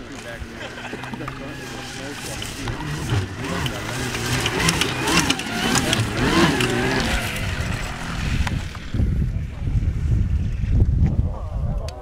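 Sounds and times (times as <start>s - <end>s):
snowmobile track clattering on snow: 0.0s - 9.2s
electric motor whine: 0.8s - 9.2s.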